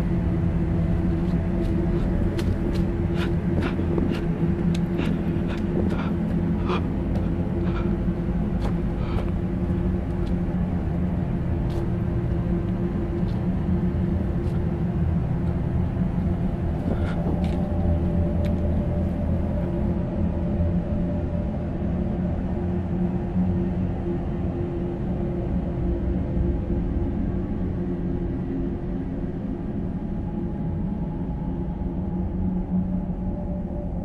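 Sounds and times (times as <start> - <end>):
low rumbling drone: 0.0 - 34.0.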